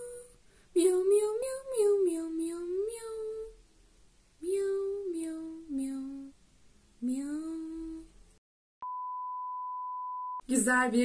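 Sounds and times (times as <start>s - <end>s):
woman singing drawn-out notes: 7.0s - 8.1s
steady beep tone: 8.8s - 10.4s.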